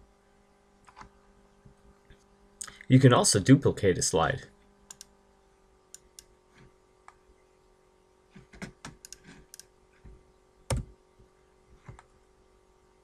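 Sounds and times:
faint steady hum: 0:00.0 - 0:13.0
mouse and keyboard clicks: 0:08.5 - 0:09.7.

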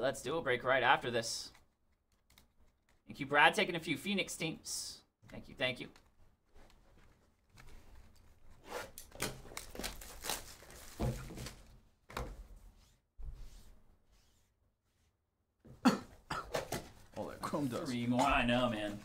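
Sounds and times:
plastic wrap tearing and crinkling: 0:08.9 - 0:11.7.

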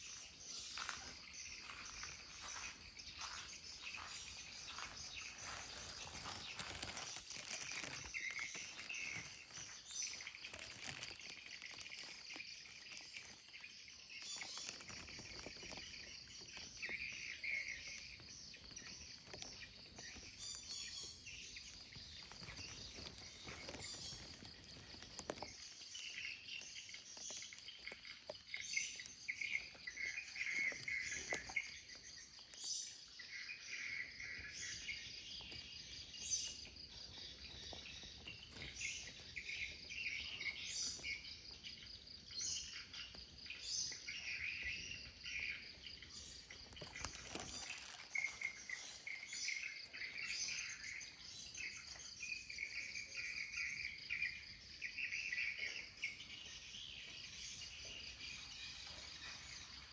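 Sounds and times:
birds calling: 0:00.0 - 0:59.9
insects trilling: 0:00.0 - 0:59.9
light clicks and rustles: 0:46.6 - 0:49.5.

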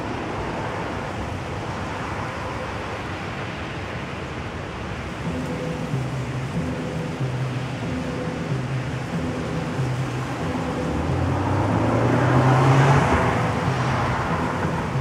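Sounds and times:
steady background rush: 0:00.0 - 0:15.0
motor vehicle passing: 0:07.4 - 0:15.0.

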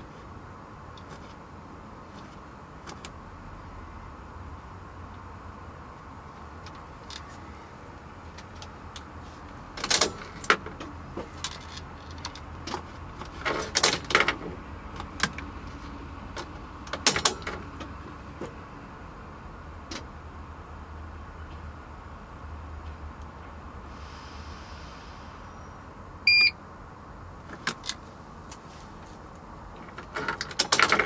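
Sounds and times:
button clicks: 0:26.3 - 0:26.5.

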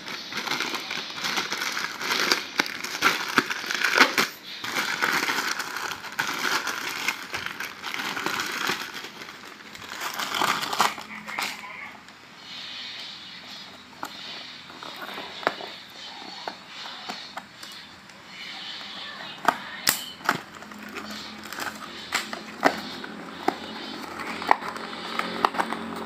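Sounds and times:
plastic wrapping crinkling: 0:00.0 - 0:11.9, 0:19.0 - 0:26.0.

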